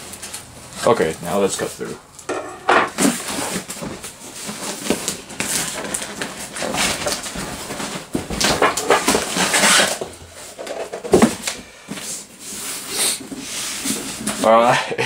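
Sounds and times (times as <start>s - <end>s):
cardboard box scraping and tearing: 8.6s - 10.1s.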